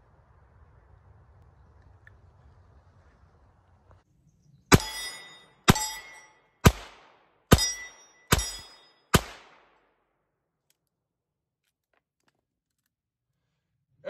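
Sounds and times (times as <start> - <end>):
revolver shots echoing: 4.7 - 9.7.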